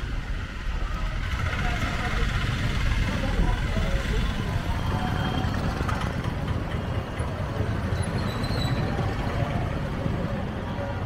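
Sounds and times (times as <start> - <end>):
low rumble of traffic: 0.0 - 11.0
faint high squeal: 8.0 - 9.1.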